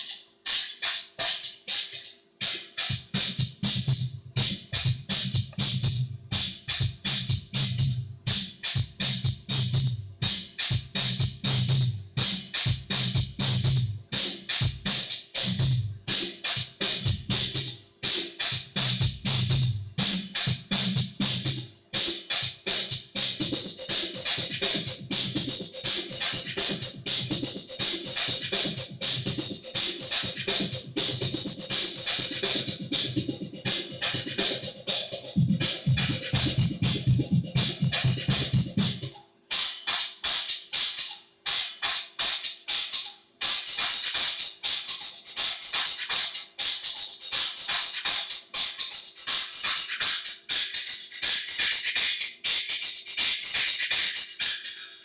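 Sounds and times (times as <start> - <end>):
electronic music: 18.4 - 55.0.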